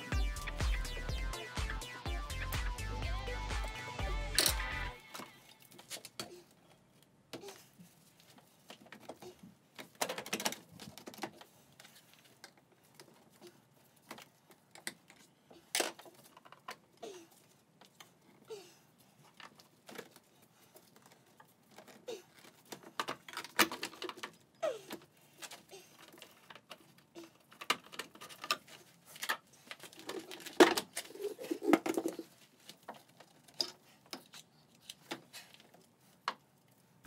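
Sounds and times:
plastic engine parts clicking and rattling: 8.2s - 18.2s, 19.2s - 36.8s.

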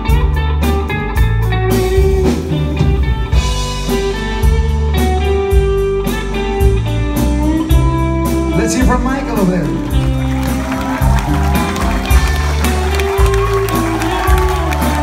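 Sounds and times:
bass guitar: 0.0s - 15.0s
drum kit: 0.0s - 15.0s
electric guitar: 0.0s - 15.0s.

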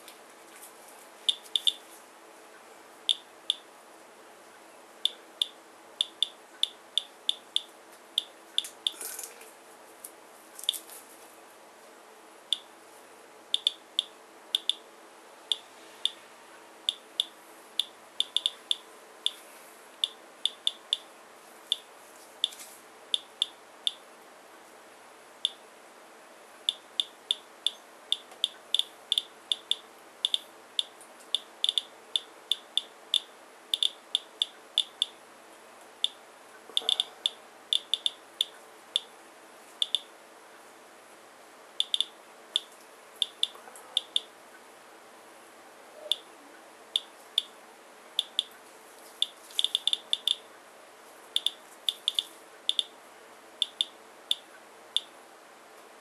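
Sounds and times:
geiger counter beeping: 13.6s - 13.8s, 14.6s - 14.8s, 16.9s - 19.4s, 26.7s - 35.2s, 36.8s - 38.2s, 41.8s - 44.3s, 49.2s - 50.4s, 51.4s - 52.9s.

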